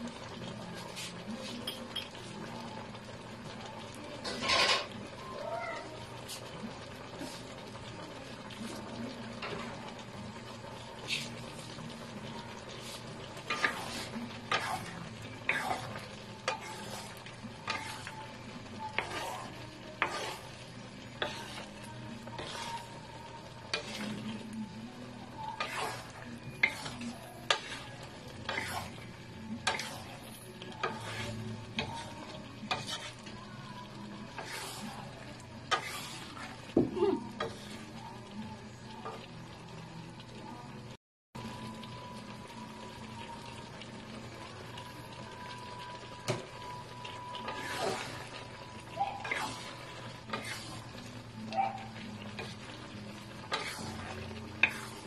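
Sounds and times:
pan sizzling: 0:00.0 - 0:55.0
utensil scraping a pan: 0:04.2 - 0:05.0, 0:11.0 - 0:11.8, 0:12.7 - 0:24.4, 0:25.3 - 0:33.4, 0:34.2 - 0:38.1, 0:47.3 - 0:55.0.

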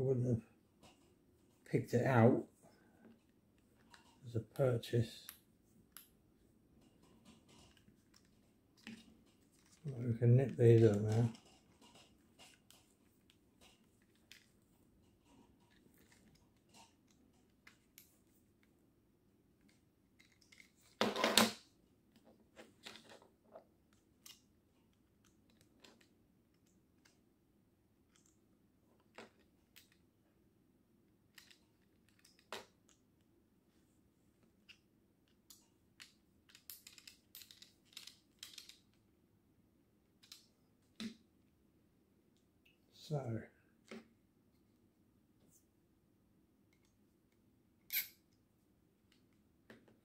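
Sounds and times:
plastic parts clicking and rattling: 0:03.0 - 0:04.2, 0:06.8 - 0:18.7, 0:19.6 - 0:27.2, 0:29.0 - 0:30.1, 0:31.2 - 0:33.0, 0:34.6 - 0:39.0, 0:40.2 - 0:41.2.

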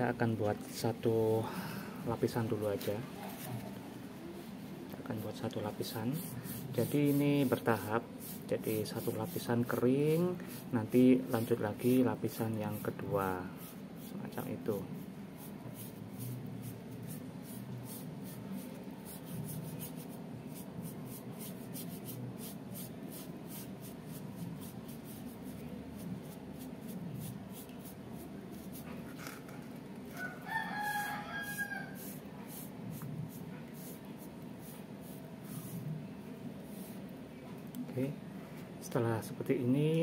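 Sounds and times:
low background noise: 0:00.0 - 0:40.0
paintbrush strokes: 0:02.2 - 0:37.3
rooster crowing: 0:30.1 - 0:32.2.

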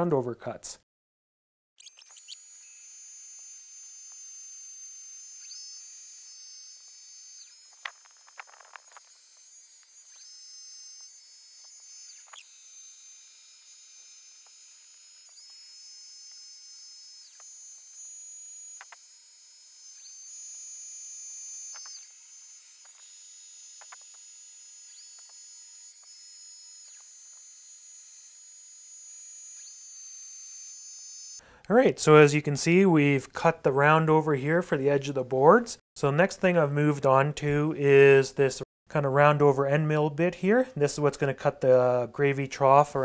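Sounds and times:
router spindle whine: 0:01.8 - 0:31.4.

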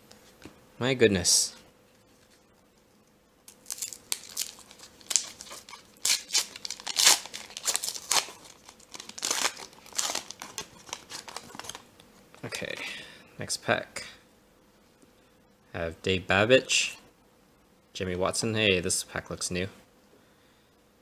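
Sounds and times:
foil wrapper crinkling and tearing: 0:03.5 - 0:11.9.

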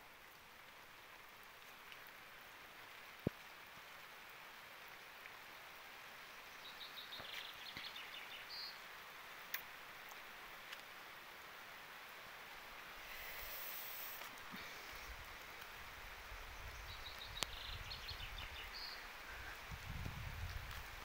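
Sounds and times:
light rain hiss: 0:00.0 - 0:21.0
small bird chirping: 0:16.4 - 0:19.1.

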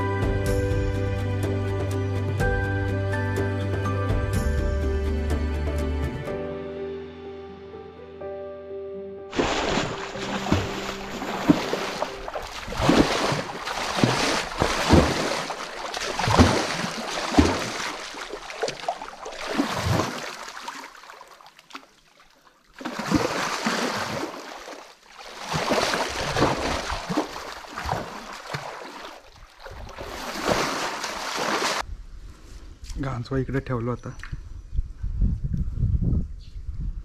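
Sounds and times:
muddy water splashed by hand: 0:09.3 - 0:31.8.

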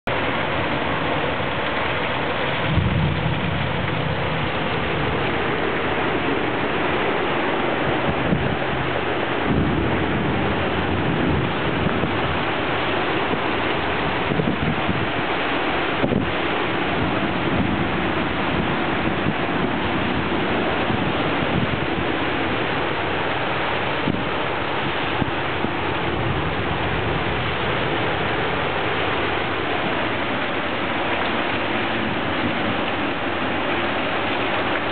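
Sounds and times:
heavy rain pouring: 0:00.0 - 0:34.9
low thunder rumble: 0:00.4 - 0:15.3, 0:23.7 - 0:34.9.

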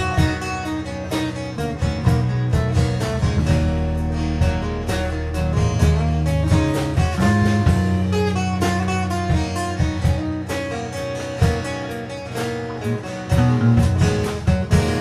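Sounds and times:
electric bass line: 0:00.0 - 0:15.0
strummed acoustic guitars: 0:00.0 - 0:15.0.

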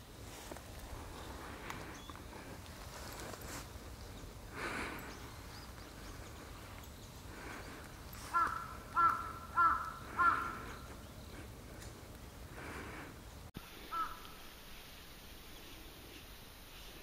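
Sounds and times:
bird cawing: 0:04.5 - 0:11.8, 0:13.8 - 0:14.4.

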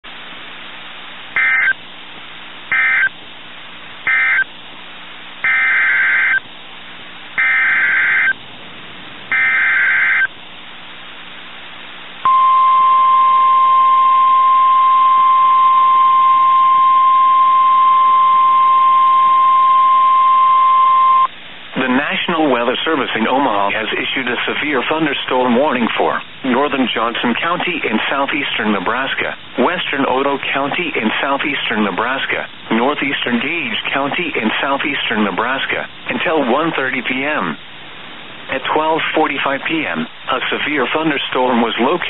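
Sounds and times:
screeching digital data bursts: 0:01.4 - 0:01.8, 0:04.1 - 0:04.5, 0:05.5 - 0:06.4, 0:07.4 - 0:08.4, 0:09.3 - 0:10.3
steady warning alarm tone: 0:01.4 - 0:01.8, 0:02.7 - 0:03.2, 0:04.1 - 0:04.5, 0:05.4 - 0:06.4, 0:07.4 - 0:08.4, 0:09.3 - 0:10.3, 0:12.3 - 0:21.3.

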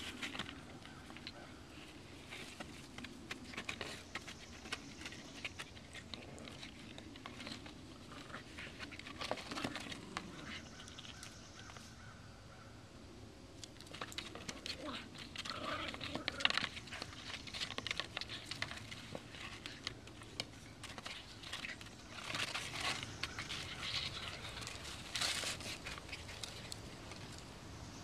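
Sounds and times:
cardboard tube scraping on dirt: 0:14.0 - 0:27.4.

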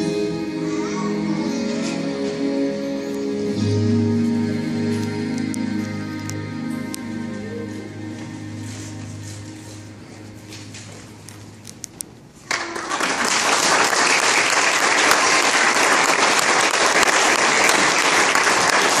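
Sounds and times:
song ending: 0:00.0 - 0:11.3
congregation applauding: 0:12.4 - 0:19.0.

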